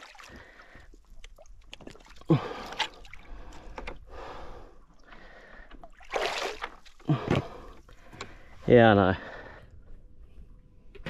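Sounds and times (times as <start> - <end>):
water splashing and dripping: 0.0 - 3.9, 4.9 - 7.2.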